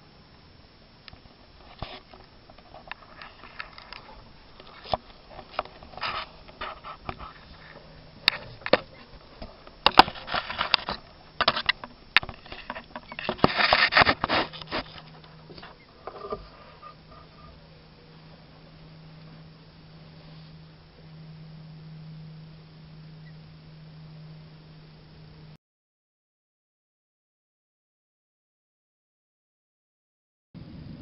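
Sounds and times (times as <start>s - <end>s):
camera handling scrapes and rustles: 1.6s - 17.4s.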